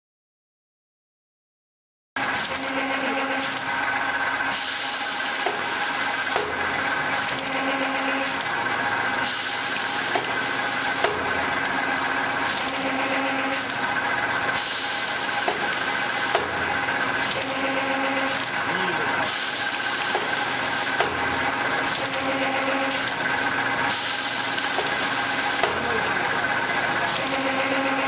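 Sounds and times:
machine hum with high whine: 2.2 - 28.0
hiss of tubes being cut: 4.5 - 6.5, 7.2 - 8.5, 9.2 - 11.3, 14.5 - 16.6, 17.2 - 21.2, 21.8 - 23.2, 23.9 - 26.1.

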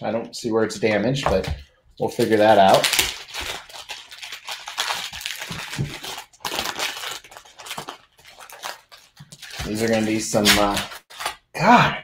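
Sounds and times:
plastic wrap crinkling and tearing: 2.0 - 11.5.

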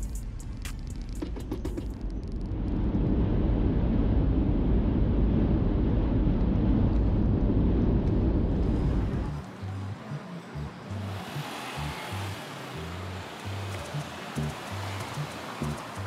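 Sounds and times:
low rumble: 0.0 - 10.0.

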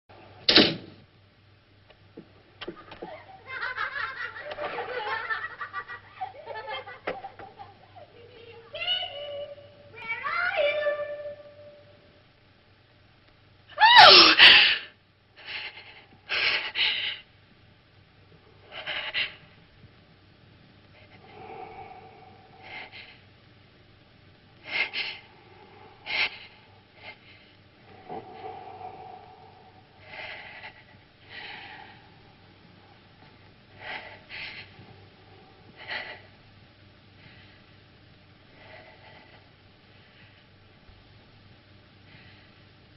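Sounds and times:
high-voiced giggling: 2.6 - 8.0
faint held tone: 10.6 - 12.2.

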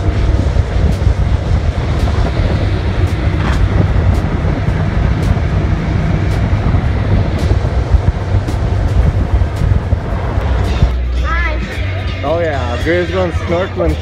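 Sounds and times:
wind buffeting microphone: 0.0 - 11.1
water rushing past a hull: 0.0 - 12.0
speedboat engine drone: 0.0 - 14.0.

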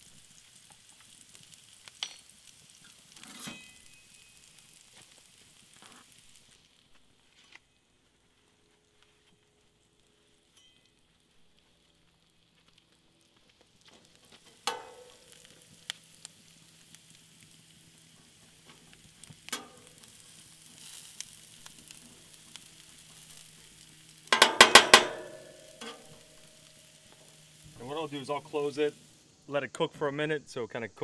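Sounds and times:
onions sizzling on griddle: 0.0 - 30.2
spatula clanking on griddle: 1.9 - 2.3, 3.2 - 4.2, 14.6 - 15.2, 19.5 - 20.1, 24.3 - 26.2
metal spatula scraping: 3.2 - 4.2, 24.4 - 26.2.

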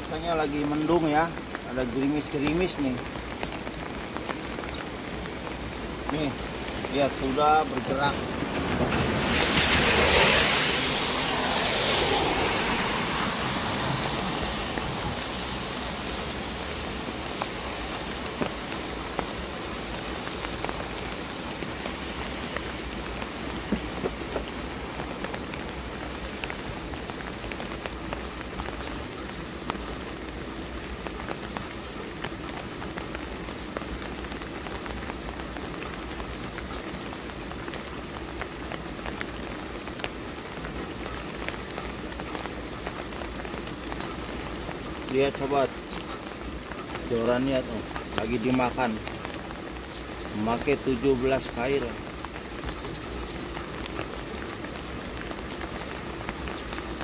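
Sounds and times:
light rain hissing: 0.0 - 57.0
rush of noise: 5.6 - 28.7.

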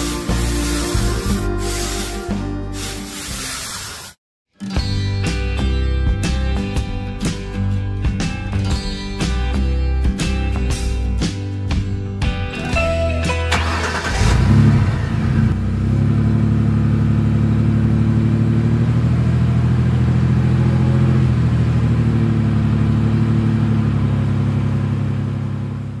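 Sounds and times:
tractor engine running: 13.5 - 26.0.

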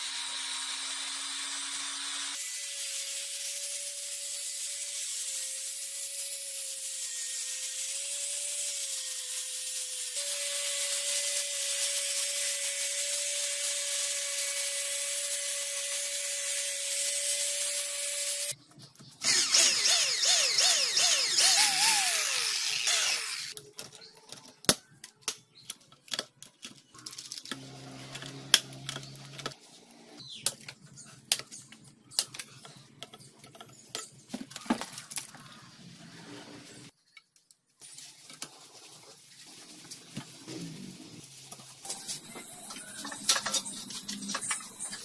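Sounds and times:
angle grinder on steel sheet: 0.0 - 18.6, 19.2 - 23.6, 41.8 - 45.0
power drill running: 19.2 - 23.5.

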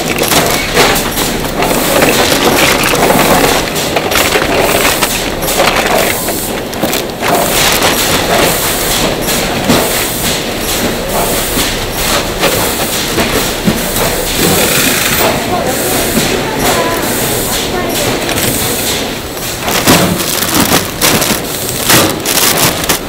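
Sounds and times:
patties clattering on steel tray: 0.0 - 10.1, 16.2 - 23.0
plastic bag rustling: 0.0 - 10.1, 12.1 - 23.0
machine noise: 0.0 - 23.0.

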